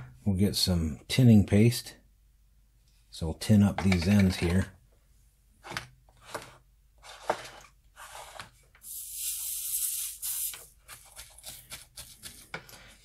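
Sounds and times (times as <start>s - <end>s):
high steady hiss: 8.8s - 10.8s.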